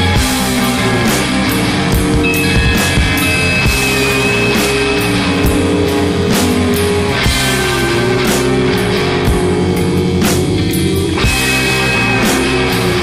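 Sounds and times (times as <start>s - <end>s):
heavy rock music: 0.0s - 13.0s.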